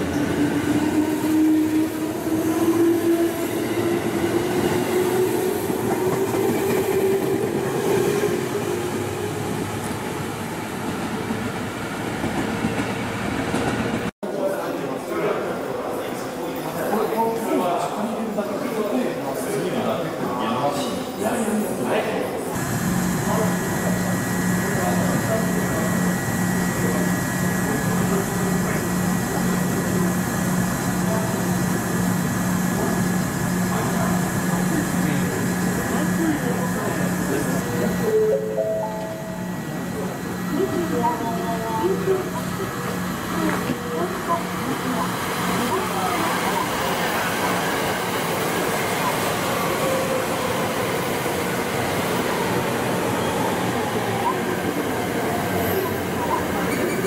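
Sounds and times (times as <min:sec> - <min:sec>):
station announcement over loudspeaker: 0:21.3 - 0:57.0
station noise: 0:22.6 - 0:57.0.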